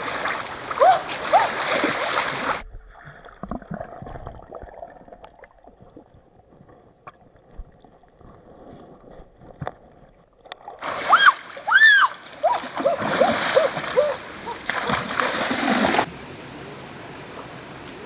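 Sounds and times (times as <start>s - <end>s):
water splashing in stream: 0.0s - 16.2s
underwater gurgling: 2.5s - 10.8s
faint underwater clicks and knocks: 5.1s - 10.8s.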